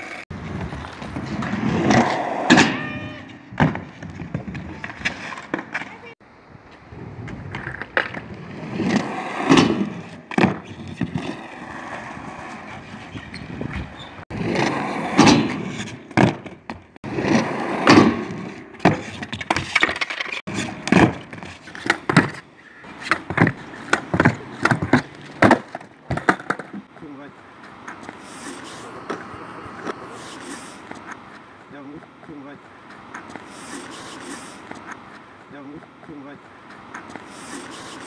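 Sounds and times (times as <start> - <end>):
skateboard clacks and landings: 0.0 - 6.1, 7.3 - 26.9
skateboard wheels rolling on concrete: 0.0 - 38.0.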